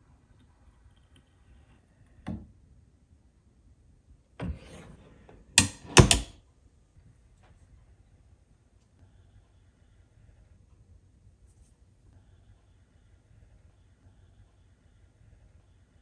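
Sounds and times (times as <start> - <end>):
door catch clicks: 5.6 - 6.3.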